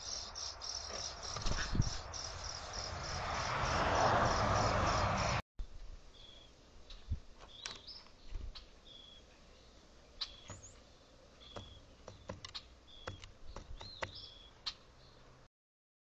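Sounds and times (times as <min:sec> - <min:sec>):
woodpecker pecking taps: 0:11.5 - 0:14.3.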